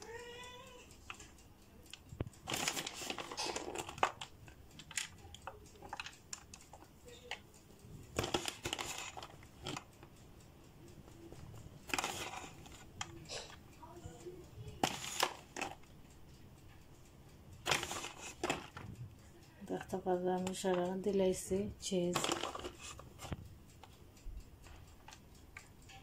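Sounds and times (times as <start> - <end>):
cheese rustling over foil tray: 2.5 - 6.1, 8.2 - 9.9, 11.8 - 13.6, 17.7 - 18.8, 22.2 - 23.4.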